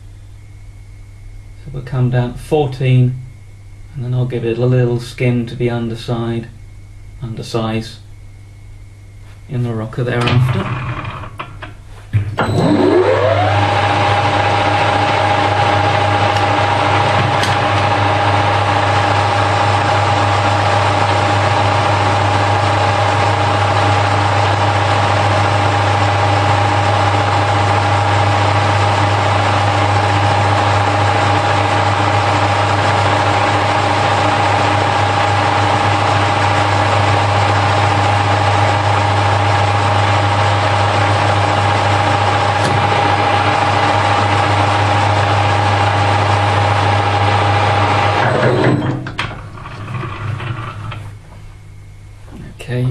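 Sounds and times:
lathe drive whine: 0:08.4 - 0:52.6
metal lathe running: 0:10.2 - 0:11.7, 0:12.4 - 0:51.1.

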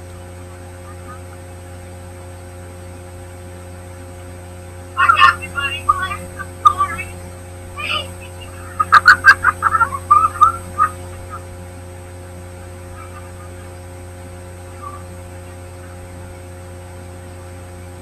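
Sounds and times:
electrical hum: 0:00.0 - 0:18.0
loud shouts: 0:05.0 - 0:07.2, 0:07.8 - 0:11.0.

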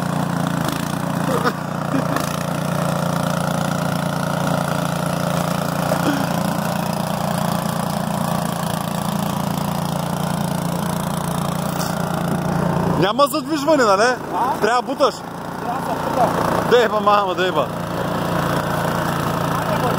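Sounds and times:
snow blower engine running: 0:00.0 - 0:19.9.

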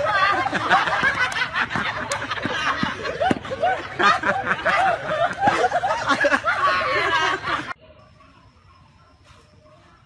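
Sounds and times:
people laughing: 0:00.0 - 0:07.8.

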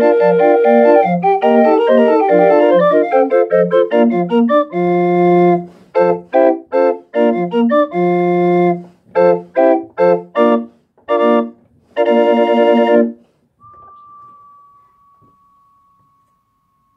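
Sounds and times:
small pipe organ playing chords: 0:00.0 - 0:13.2.

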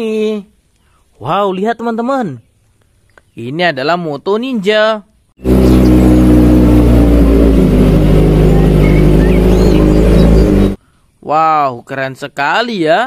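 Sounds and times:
motorcycle engine idling: 0:05.4 - 0:10.8.

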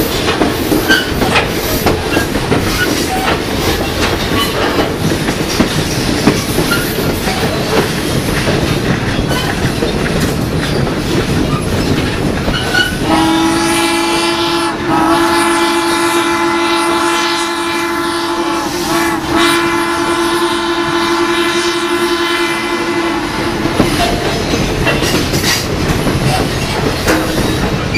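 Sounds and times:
coaches clattering on rails: 0:00.0 - 0:16.5, 0:22.7 - 0:27.9
steam locomotive whistle blasts: 0:12.7 - 0:24.0.

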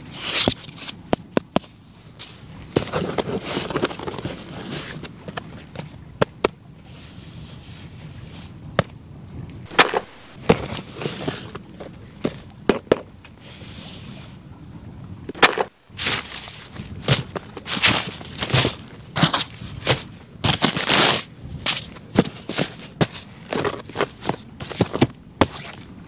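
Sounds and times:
cardboard boxes rustling and scraping: 0:00.0 - 0:05.9, 0:09.7 - 0:12.5, 0:15.3 - 0:25.9.

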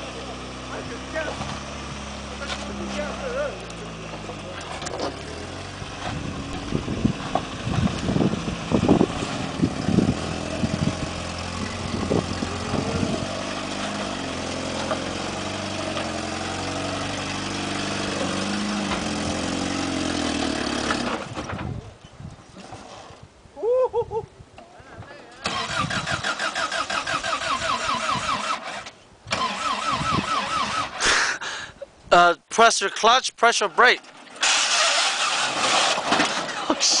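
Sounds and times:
truck engine running under load: 0:00.0 - 0:21.6.

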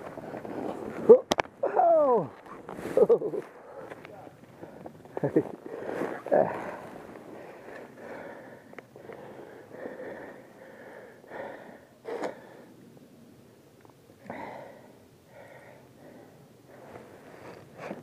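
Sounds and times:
person breathing hard: 0:05.6 - 0:12.8, 0:14.2 - 0:17.6.

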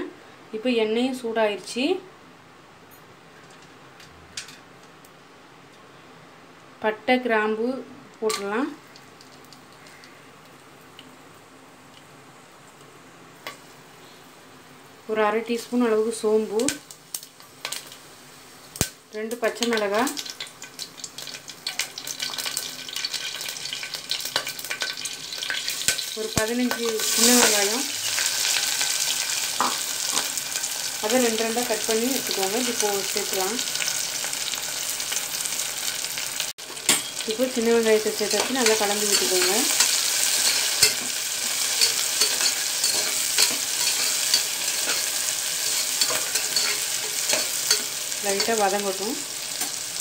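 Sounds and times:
spices frying in oil: 0:08.2 - 0:50.0
small crackles and pops: 0:08.8 - 0:11.2, 0:16.6 - 0:18.0, 0:18.7 - 0:27.6
metal spoon scraping and knocking pot: 0:38.3 - 0:48.6.

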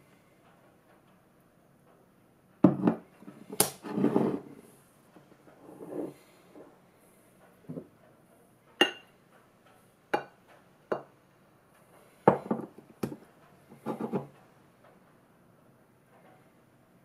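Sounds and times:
glass bottles clinking on countertop: 0:08.8 - 0:09.1.

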